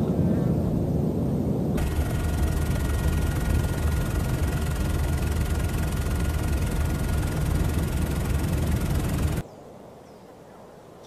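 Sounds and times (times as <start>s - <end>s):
aircraft cabin drone: 1.8s - 9.4s
faint steady whine: 1.8s - 9.4s.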